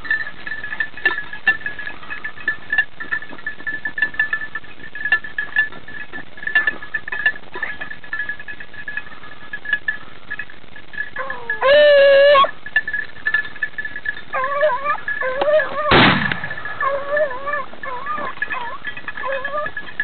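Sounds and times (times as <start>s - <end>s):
dog howling: 11.2s - 12.6s, 14.3s - 20.0s.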